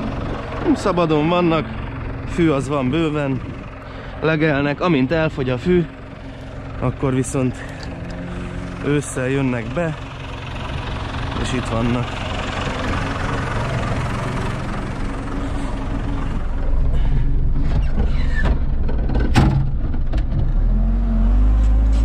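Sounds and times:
diesel engine idling: 0.0 - 20.0
knocks and clunks in cab: 16.8 - 20.6
engine revving up: 20.4 - 22.0.

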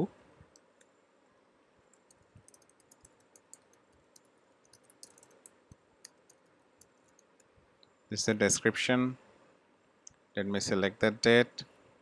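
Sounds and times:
computer keyboard typing: 2.0 - 7.5.

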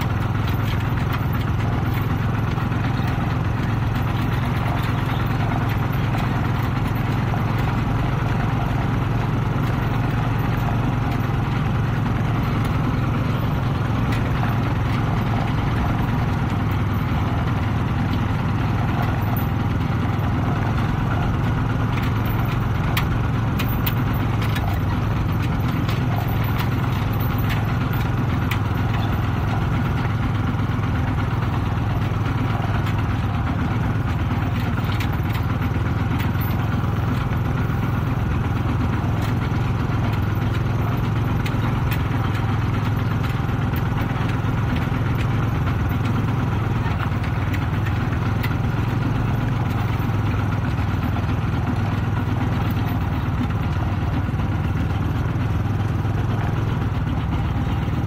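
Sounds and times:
diesel tractor engine running: 0.0 - 58.0
trailer clicks and rattles: 0.0 - 58.0.

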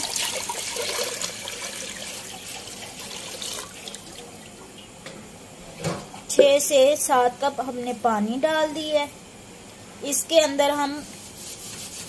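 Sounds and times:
water pouring into metal pot: 0.0 - 4.2.

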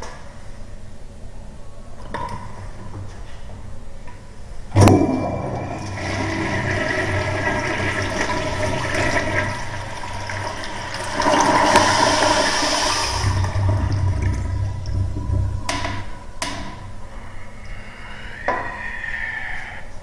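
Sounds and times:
toilet flushing: 4.8 - 16.1.

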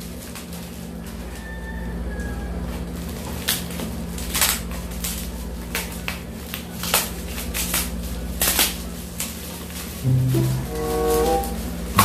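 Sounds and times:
bubble wrap crinkling: 3.2 - 12.0
steady low hum: 10.0 - 12.0.

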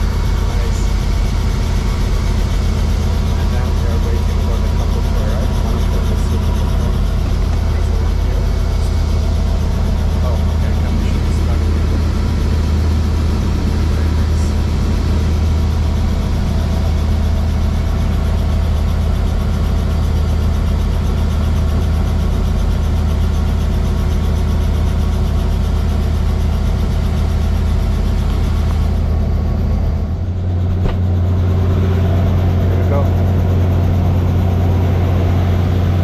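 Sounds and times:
helicopter engine and rotor: 0.0 - 36.0.

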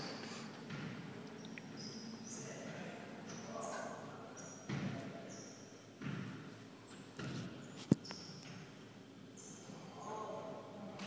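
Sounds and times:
basketball bouncing on hardwood floor: 0.7 - 1.0, 6.0 - 6.4
sneakers squeaking on court: 0.7 - 1.1, 4.4 - 8.6.

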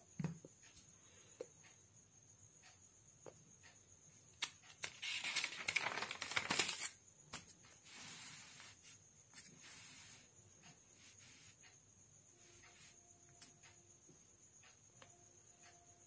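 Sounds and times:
paper page rustling: 4.8 - 7.5.

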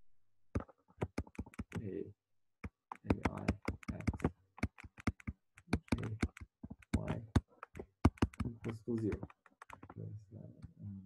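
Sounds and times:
stylus tapping on pen tablet: 0.6 - 1.8, 2.6 - 10.0.

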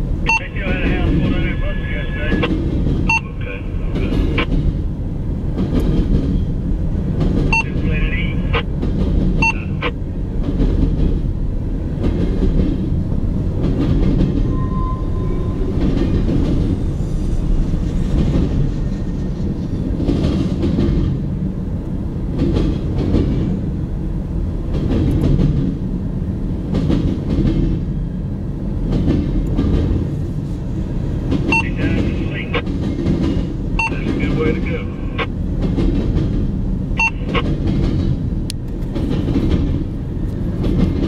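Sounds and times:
train wheels rumbling on rails: 0.0 - 41.0.

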